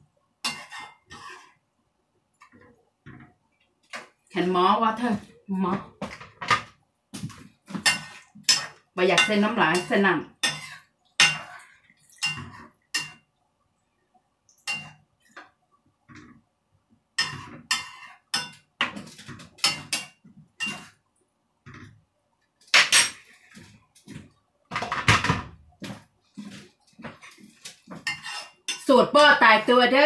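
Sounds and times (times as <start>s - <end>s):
metal spoon scraping a frying pan: 0.4s - 1.6s, 7.7s - 13.2s, 14.7s - 15.0s, 17.2s - 21.0s, 22.7s - 23.7s, 26.4s - 30.0s
curry simmering: 6.2s - 24.7s.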